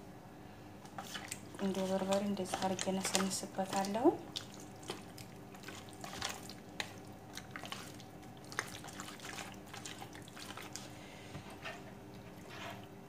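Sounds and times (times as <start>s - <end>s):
wet squelching of raw chicken: 0.9s - 11.3s.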